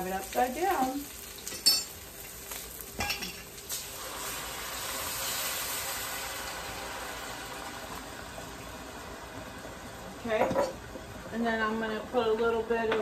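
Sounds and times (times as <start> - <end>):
broth sizzling: 0.0 - 12.8
glass clinks: 1.5 - 1.9
broth pouring into hot pot: 2.0 - 10.2.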